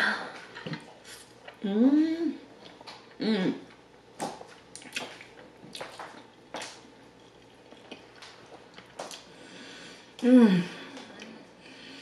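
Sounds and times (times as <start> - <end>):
wet chewing and lip smacks: 2.6 - 9.3.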